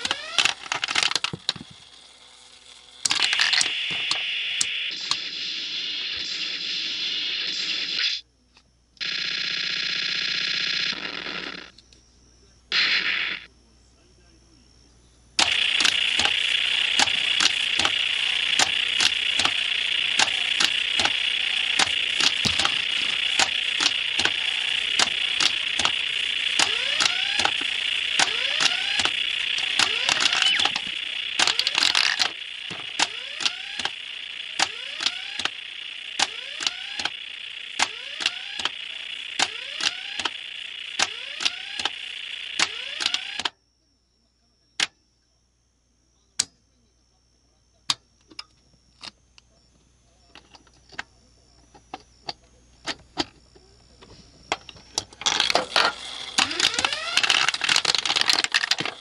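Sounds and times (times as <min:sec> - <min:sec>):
sharp mechanical clicks: 0:00.0 - 0:05.3, 0:15.4 - 0:43.6, 0:54.5 - 0:59.0
high electronic tone: 0:15.4 - 0:43.5, 0:54.4 - 0:59.0.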